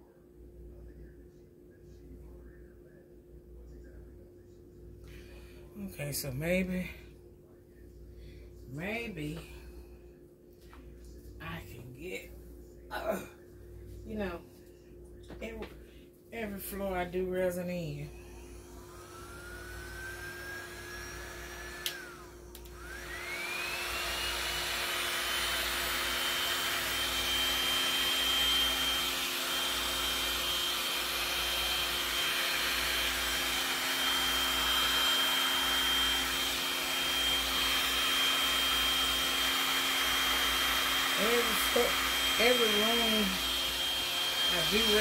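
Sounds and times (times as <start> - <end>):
heat gun fan whine: 5.1 - 10.1, 10.8 - 45.0.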